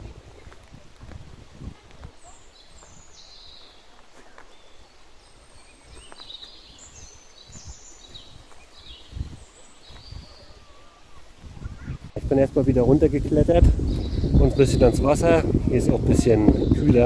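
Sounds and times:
footsteps on forest path: 0.0s - 12.1s
small birds chirping: 0.0s - 17.0s.

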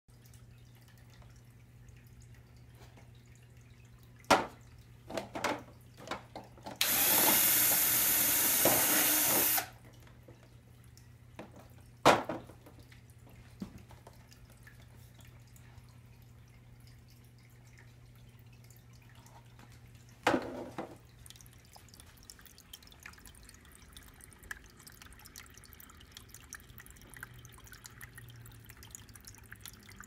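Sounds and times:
low steady hum: 0.1s - 30.0s
cordless drill boring plastic: 6.8s - 9.8s.

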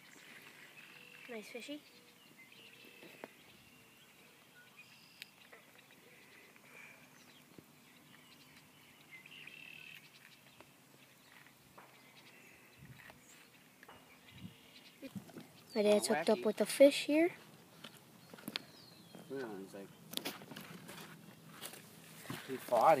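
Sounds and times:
faint bird calls: 0.0s - 16.2s.

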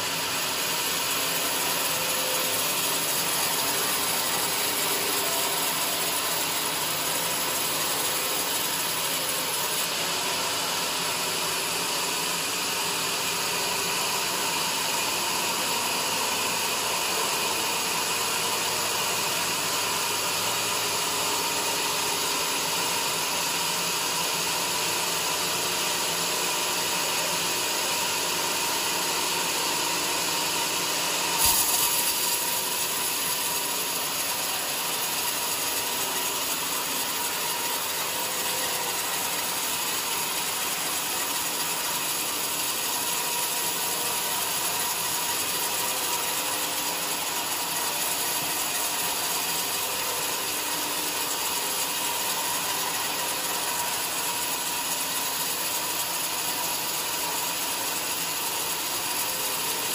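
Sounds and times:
band saw cutting wood: 0.0s - 23.3s, 24.2s - 59.9s.

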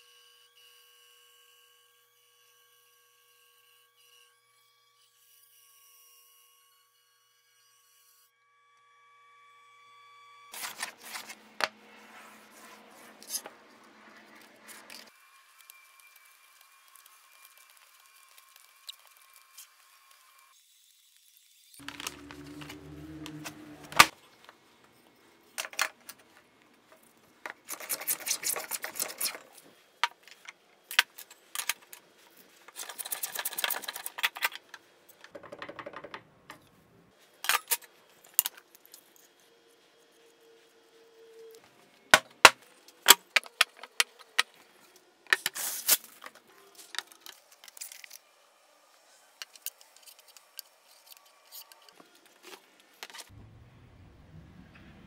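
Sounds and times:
tools clicking and knocking: 32.7s - 36.7s.

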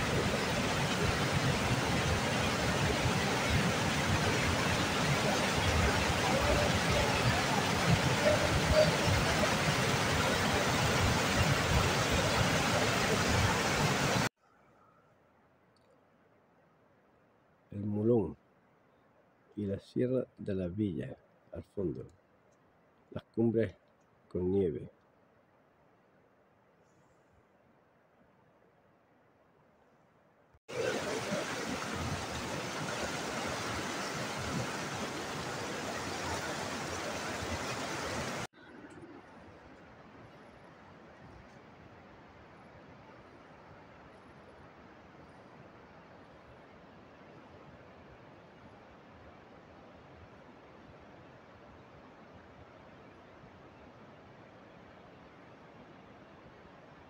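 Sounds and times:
waterfall rushing: 0.0s - 14.3s, 30.7s - 38.9s.

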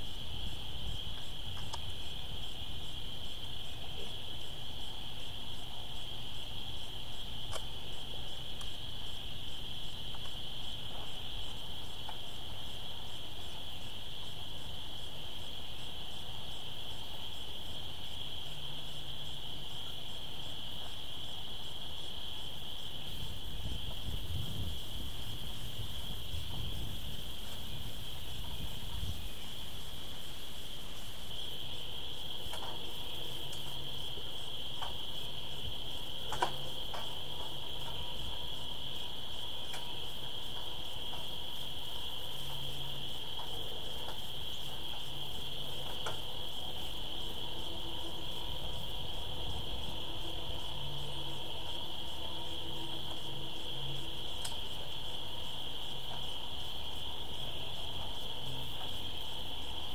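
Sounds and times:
faint clicks: 7.5s - 7.7s, 54.4s - 54.6s.

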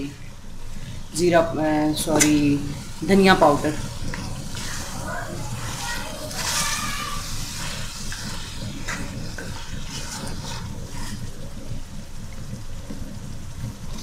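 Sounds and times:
meat sizzling: 0.6s - 14.0s
spatula scraping a pot: 2.7s - 11.8s.

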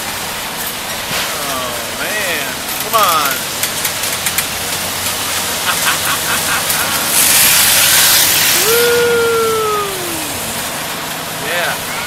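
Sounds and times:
ferris wheel ride running: 0.0s - 12.0s
loud hiss: 0.0s - 12.0s
rider whooping: 5.5s - 10.8s.

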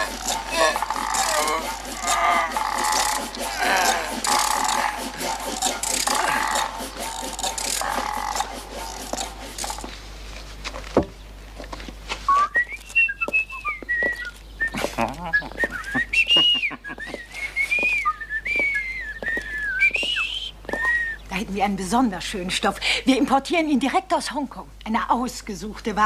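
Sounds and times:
person whistling a tune: 12.3s - 21.2s.

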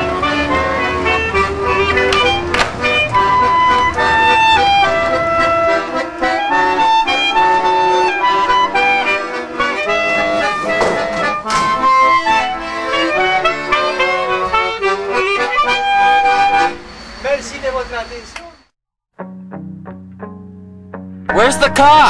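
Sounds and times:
clarinet melody: 0.0s - 17.0s
instrumental accompaniment: 0.0s - 17.0s, 19.2s - 22.0s.

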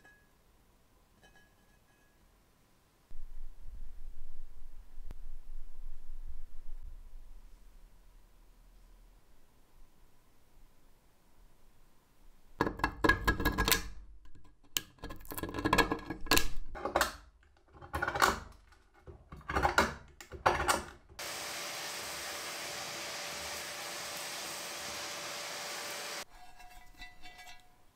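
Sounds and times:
vacuum cleaner running: 21.2s - 26.2s
knife blade scraping metal: 26.3s - 27.8s.

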